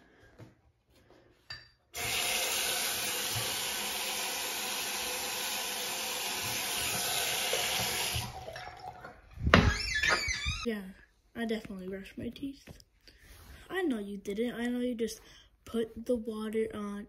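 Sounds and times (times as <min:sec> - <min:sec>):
tap water running into sink: 0:02.0 - 0:09.7.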